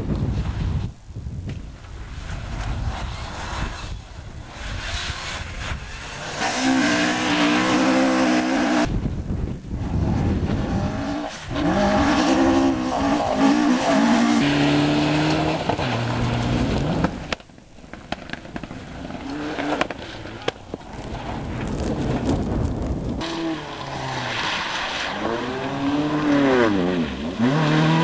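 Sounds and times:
rally car engine revving: 0:02.9 - 0:08.9, 0:09.8 - 0:17.4, 0:19.0 - 0:21.8, 0:23.2 - 0:28.0.

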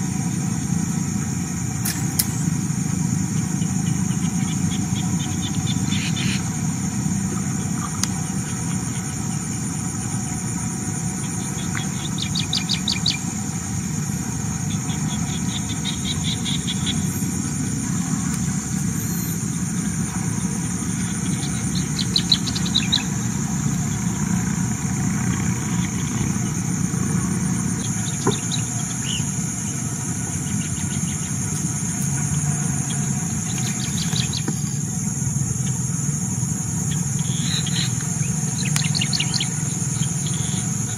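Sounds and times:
high-pitched insect drone: 0:00.0 - 0:40.9
bird chirps: 0:03.4 - 0:06.6, 0:11.2 - 0:13.6, 0:14.6 - 0:17.3, 0:21.0 - 0:24.3, 0:27.8 - 0:34.8, 0:36.9 - 0:40.9.

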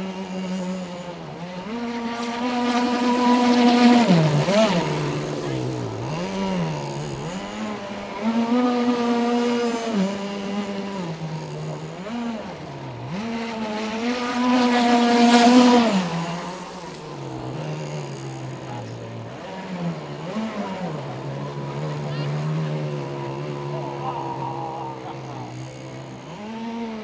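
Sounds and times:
hissing rush of passing boat: 0:00.0 - 0:27.0
model speedboat engine running hard: 0:00.0 - 0:27.0.

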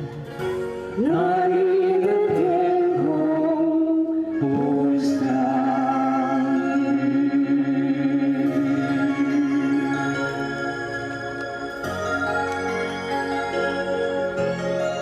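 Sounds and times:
man and woman singing a duet: 0:01.0 - 0:10.3.

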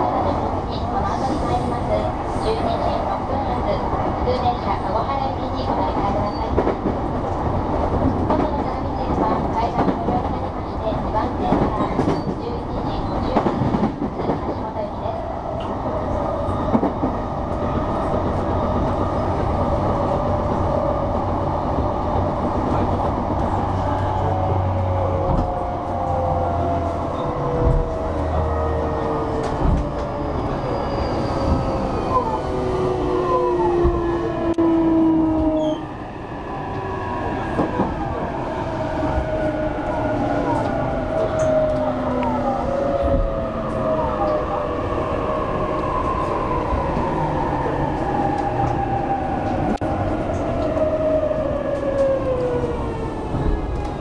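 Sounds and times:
train wheels rumbling on rail: 0:00.0 - 0:54.0.

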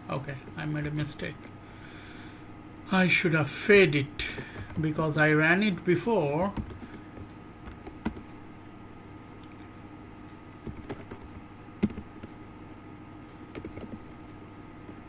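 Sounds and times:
steady low hum: 0:00.0 - 0:15.0
keyboard keystrokes: 0:10.6 - 0:12.3, 0:13.5 - 0:14.2.

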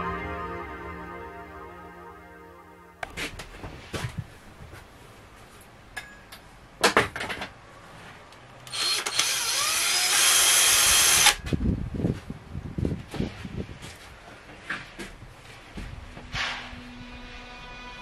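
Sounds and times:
cordless drill driving a screw: 0:08.7 - 0:11.4.

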